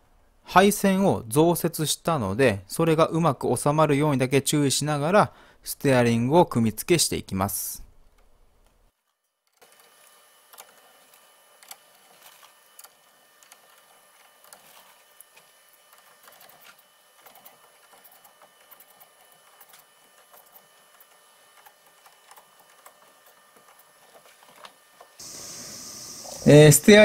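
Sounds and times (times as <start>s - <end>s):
faint high hum: 25.2s - 27.0s.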